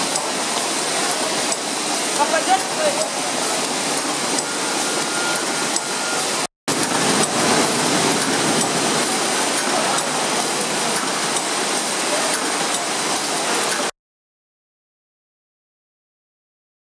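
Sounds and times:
packing machinery humming: 0.0s - 13.7s.

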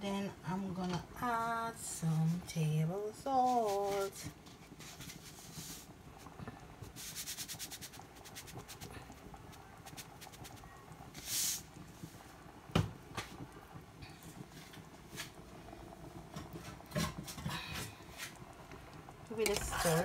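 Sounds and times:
salt hiss: 3.2s - 12.3s.

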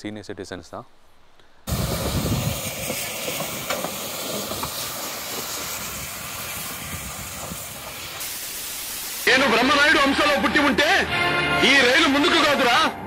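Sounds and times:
steam locomotive hissing steam: 1.7s - 10.9s.

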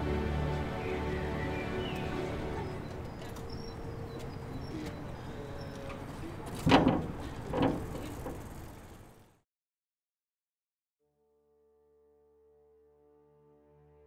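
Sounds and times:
background music: 0.0s - 3.4s, 12.3s - 14.0s
metal gates clanking shut: 6.6s - 8.4s.

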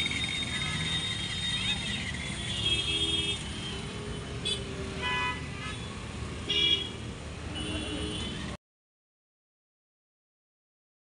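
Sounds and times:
low rumble of engines: 0.0s - 8.6s.

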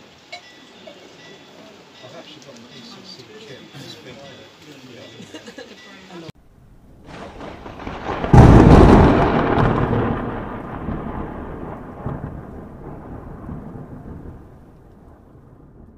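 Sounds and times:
loud boom with noisy tail: 6.6s - 15.9s.

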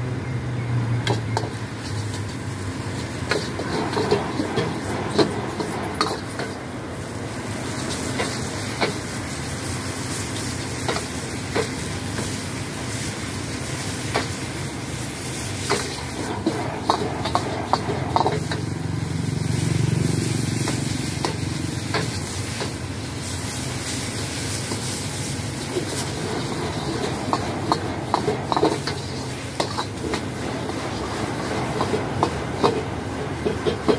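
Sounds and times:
sizzling hiss: 1.0s - 33.9s
metal ladle scraping a wok: 1.4s - 6.6s, 15.4s - 19.5s, 20.5s - 33.8s.

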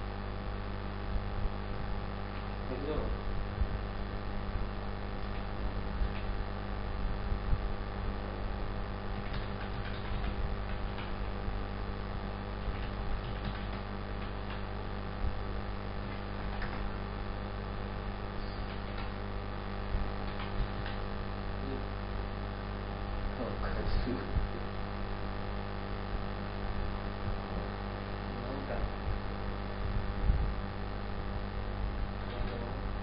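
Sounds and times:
electrical mains hum: 0.0s - 33.0s
keyboard typing: 9.1s - 11.3s, 12.6s - 14.7s, 16.0s - 17.0s, 18.5s - 19.2s, 20.2s - 21.0s.

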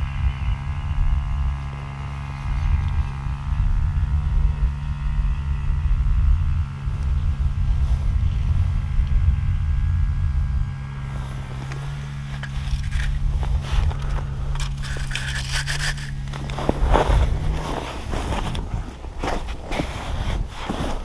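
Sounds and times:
steady low hum: 0.0s - 21.0s
wind rumbling on microphone: 0.0s - 21.0s
crunching and scraping of snow: 6.6s - 21.0s.

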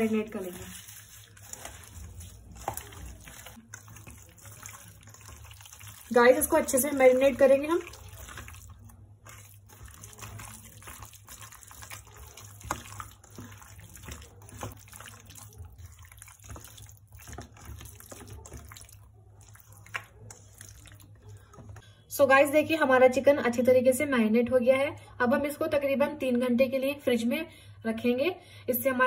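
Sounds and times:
wet squelching of mixing: 0.0s - 22.1s.

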